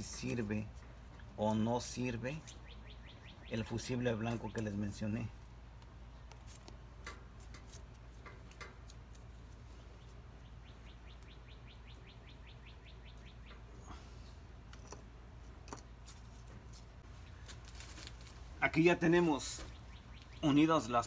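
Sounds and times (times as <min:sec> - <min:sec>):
faint bird trill: 0:01.5 - 0:05.3, 0:09.7 - 0:14.4, 0:19.3 - 0:21.0.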